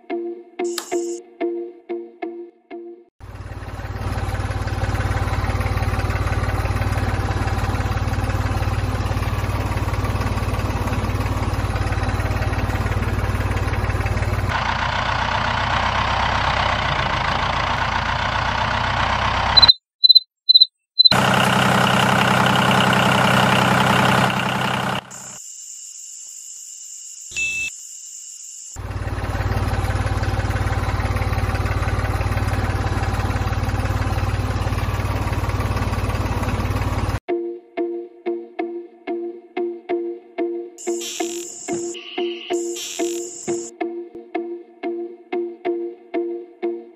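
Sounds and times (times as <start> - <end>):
short high beeps: 0.7 - 1.2, 19.6 - 21.2, 27.4 - 27.7, 40.8 - 43.7
small electric motor buzzing: 40.8 - 43.7.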